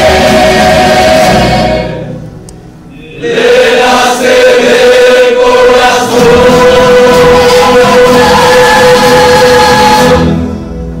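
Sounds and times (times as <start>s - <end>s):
choir holding a long note: 0.0s - 2.3s, 2.9s - 10.6s
acoustic guitars and double bass: 5.8s - 11.0s.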